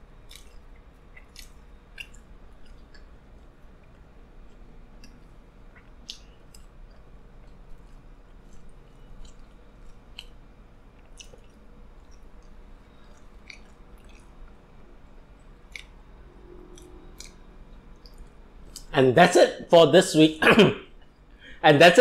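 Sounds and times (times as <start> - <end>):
person chewing food: 0.0 - 18.9
low steady hum: 0.0 - 22.0
wet mouth clicks: 1.2 - 3.1, 11.0 - 14.3, 15.7 - 16.0.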